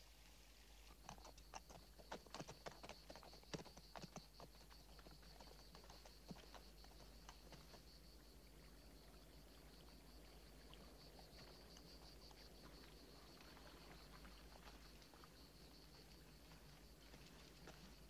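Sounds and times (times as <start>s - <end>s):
faint ticks: 10.7s - 18.0s.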